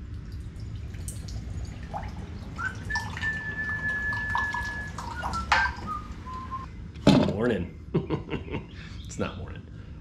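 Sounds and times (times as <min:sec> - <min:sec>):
liquid pouring into a mug: 0:00.0 - 0:05.8
thin ringing tone of filling mug: 0:00.3 - 0:06.1.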